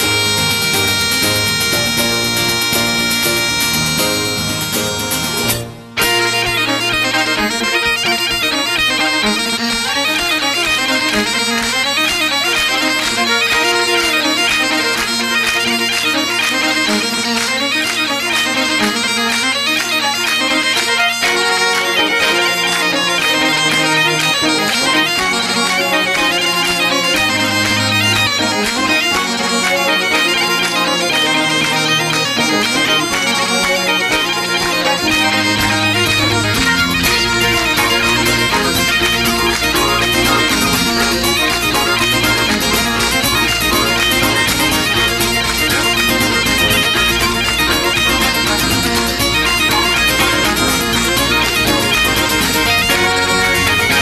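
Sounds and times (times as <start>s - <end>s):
traditional music with drone: 0.0s - 54.0s.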